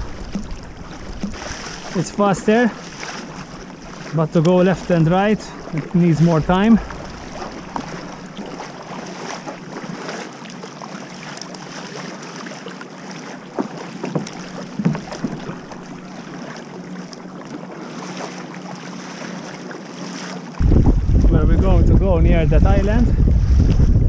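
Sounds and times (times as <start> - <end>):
wind buffeting microphone: 0.0 - 9.0, 20.6 - 24.0
paddle splashes: 0.0 - 21.3
water splashing along kayak hull: 0.0 - 24.0.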